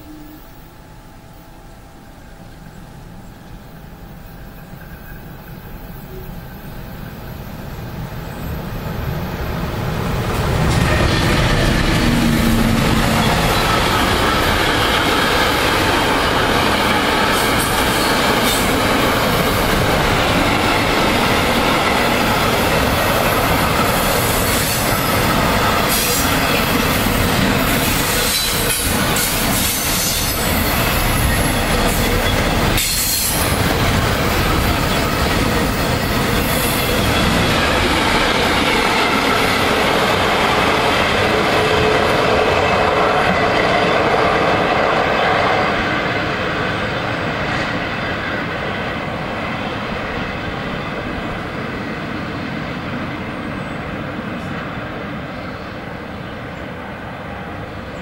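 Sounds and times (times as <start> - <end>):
freight train rumbling past: 0.0 - 58.0
rail clatter: 8.4 - 52.0.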